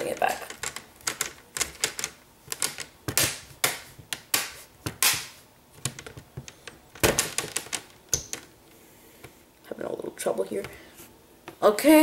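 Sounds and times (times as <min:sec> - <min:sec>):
plastic clips snapping into place: 0:00.5 - 0:08.5.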